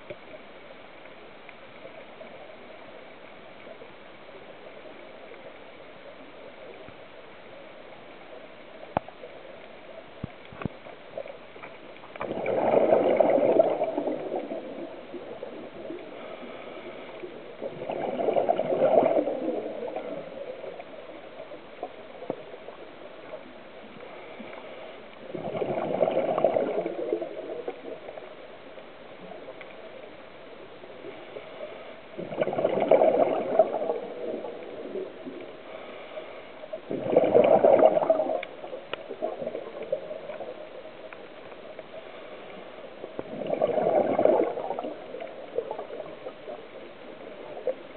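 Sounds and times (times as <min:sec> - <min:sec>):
faint clicks: 0:00.0 - 0:12.4, 0:27.6 - 0:30.3, 0:38.0 - 0:43.3
underwater hiss: 0:11.6 - 0:22.2, 0:23.2 - 0:28.2, 0:31.0 - 0:40.8, 0:41.4 - 0:47.7
diver exhaling bubbles: 0:12.2 - 0:17.0, 0:17.6 - 0:20.5, 0:25.3 - 0:28.0, 0:32.2 - 0:35.4, 0:36.8 - 0:40.0, 0:43.2 - 0:46.6.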